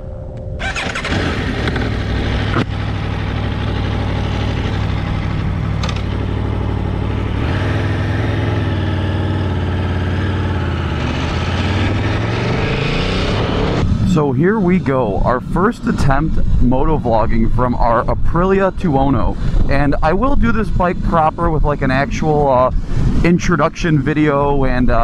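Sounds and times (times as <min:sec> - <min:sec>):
motorcycle engine pulling away: 0:00.6 - 0:13.9.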